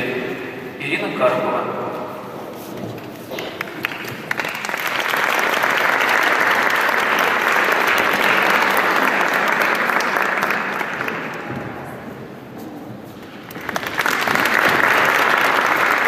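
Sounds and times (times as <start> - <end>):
audience applauding: 3.3 - 11.6, 13.2 - 16.0.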